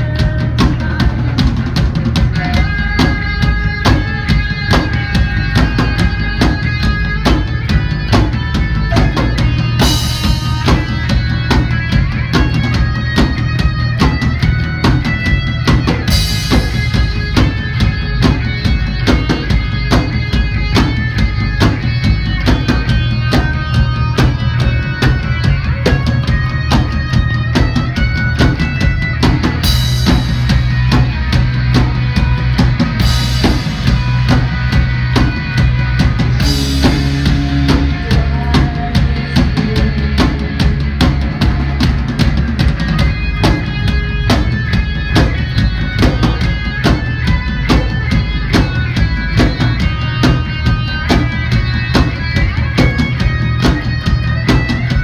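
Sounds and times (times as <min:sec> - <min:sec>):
drum kit beat: 0:00.0 - 0:55.0
rock band playing live: 0:00.0 - 0:55.0.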